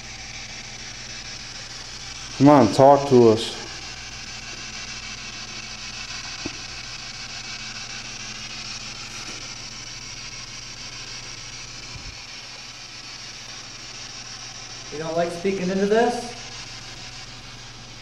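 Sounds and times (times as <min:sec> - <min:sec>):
microphone self-noise hiss: 0:11.9 - 0:12.2.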